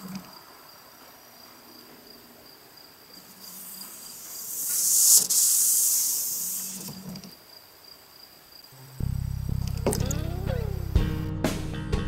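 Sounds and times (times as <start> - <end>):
wiper swishing hiss: 3.2 - 7.1.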